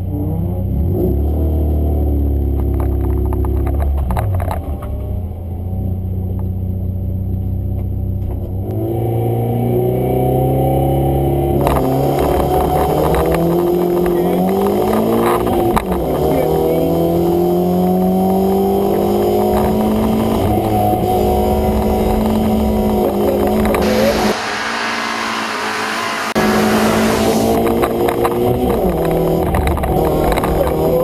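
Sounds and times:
car engine revving: 0.0 - 31.0
tyre and road noise: 0.0 - 31.0.

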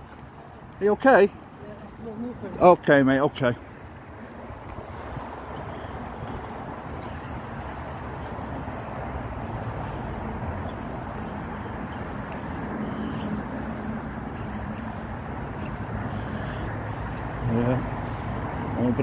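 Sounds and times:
low engine hum: 0.0 - 19.0
road traffic rumble: 0.0 - 19.0.

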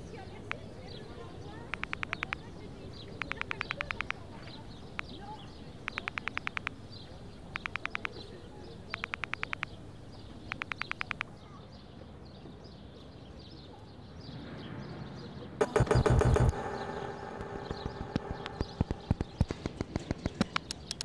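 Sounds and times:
faint bird chirping: 0.0 - 21.0
rapid clicking bursts: 1.7 - 2.5, 3.2 - 5.2, 5.8 - 6.9, 7.5 - 8.2, 8.9 - 9.8, 10.5 - 11.3, 15.6 - 21.0
loud rattling clatter: 15.6 - 21.0.

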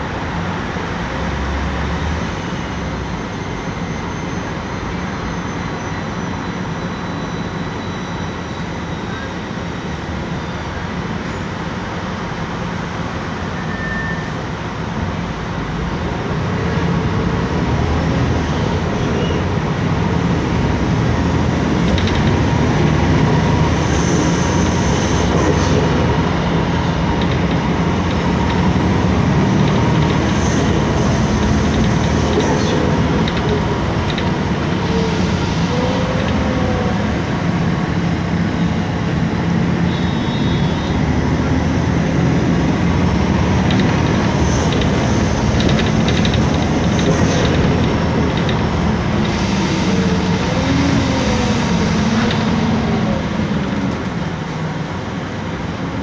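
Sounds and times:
bus engine rumbling: 0.0 - 56.0
road and body noise: 16.1 - 56.0.

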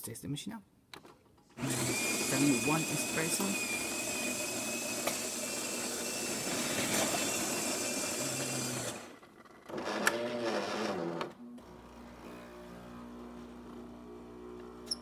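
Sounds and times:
espresso machine grinding beans: 1.6 - 15.0.

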